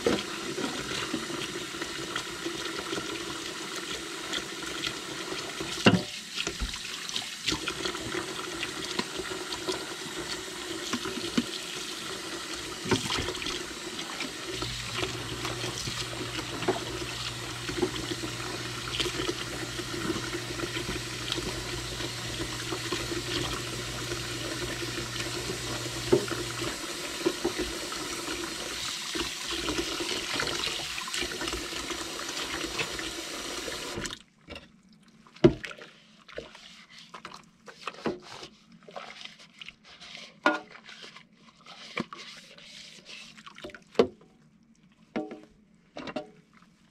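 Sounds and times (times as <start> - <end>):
faucet running into sink: 0.0 - 34.2.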